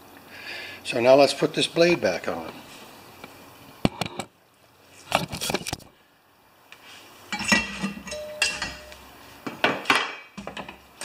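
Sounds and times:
metal tools clinking and clattering: 7.3 - 9.0.

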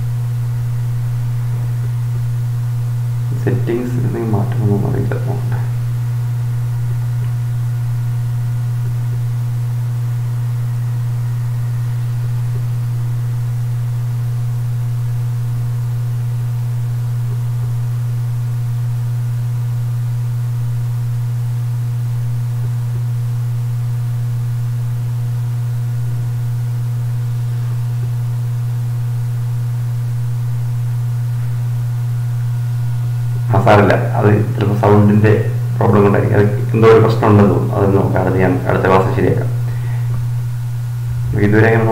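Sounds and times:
loud electrical hum: 0.0 - 41.9.

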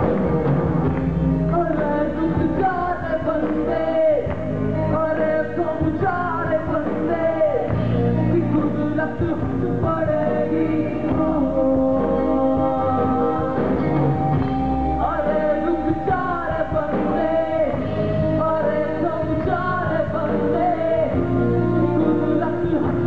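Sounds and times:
live band accompaniment: 0.0 - 23.0
man singing ornamented melody: 14.7 - 23.0.

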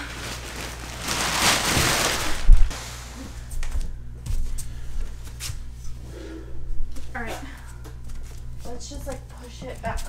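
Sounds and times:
plastic wrapping crinkling: 0.0 - 2.7.

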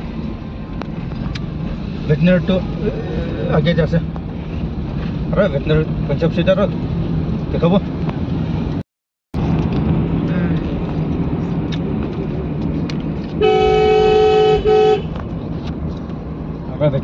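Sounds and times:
car engine and road noise: 0.0 - 17.0
car horn blasts: 13.4 - 15.2.

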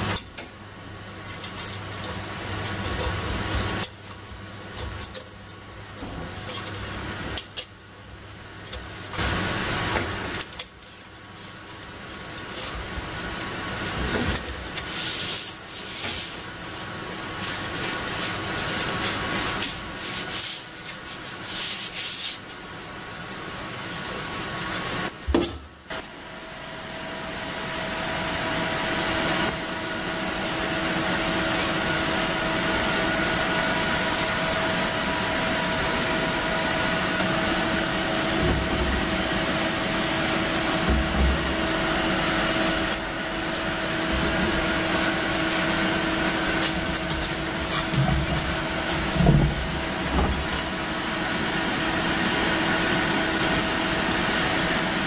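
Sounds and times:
steady hum with faint tone: 0.0 - 55.0
cloth rubbing on steel helmet: 14.8 - 24.8.

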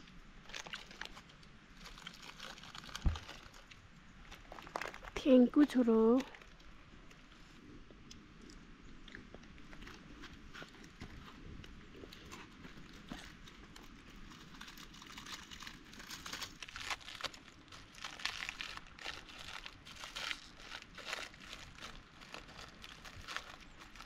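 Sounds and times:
plastic snack packet crinkling: 0.4 - 6.7, 12.0 - 24.0.

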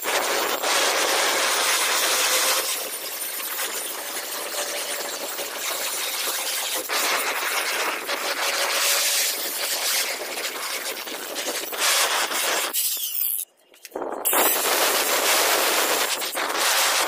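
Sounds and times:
angle grinder grinding metal: 0.0 - 13.5.

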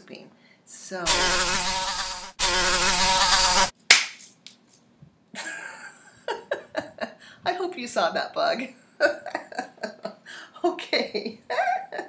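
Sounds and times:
flying insect buzzing: 1.1 - 3.7.

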